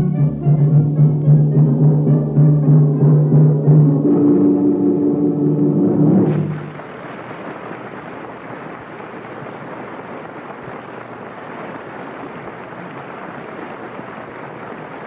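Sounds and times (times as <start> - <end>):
steady rushing noise: 5.9 - 15.0.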